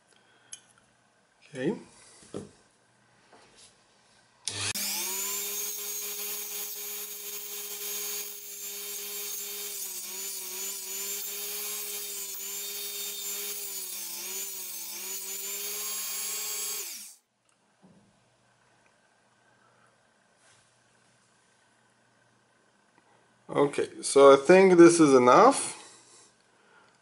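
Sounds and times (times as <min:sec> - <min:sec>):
rotary tool grinding: 0:04.5 - 0:17.2.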